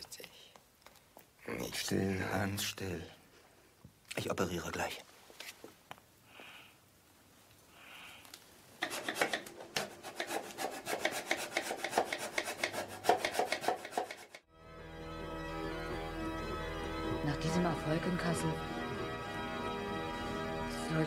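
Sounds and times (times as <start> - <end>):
hacksaw cutting wood: 8.8 - 14.5
music with organ-like tones: 14.5 - 21.0.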